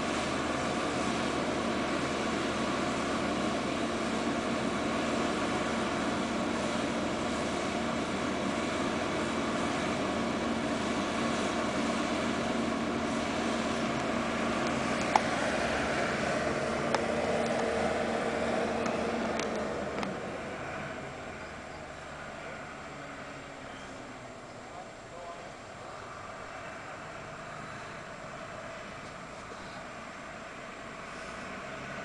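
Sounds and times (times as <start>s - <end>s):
excavator diesel engine droning: 0.0s - 32.0s.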